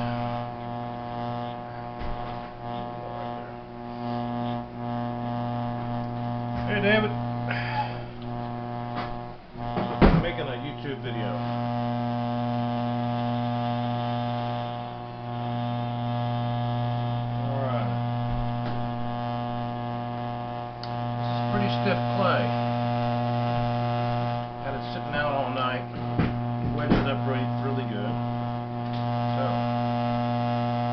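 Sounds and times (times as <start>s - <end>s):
potter's wheel motor humming: 0.0s - 30.9s
sharp knock: 9.8s - 10.3s.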